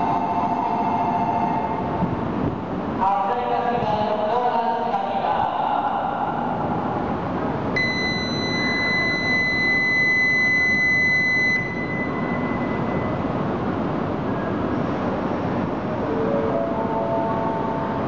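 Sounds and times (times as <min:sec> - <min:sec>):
station rumble: 0:00.0 - 0:18.0
platform buzzer high tone: 0:07.8 - 0:13.2.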